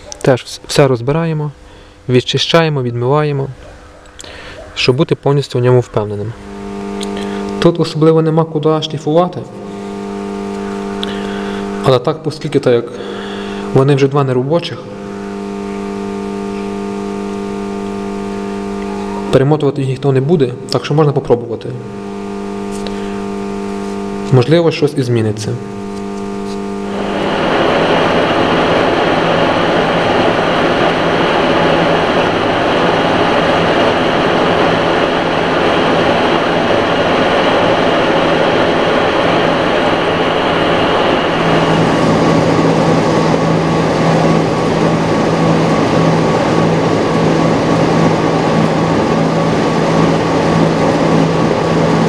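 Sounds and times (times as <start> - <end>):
metal lathe running: 12.6 - 19.4, 25.6 - 52.0.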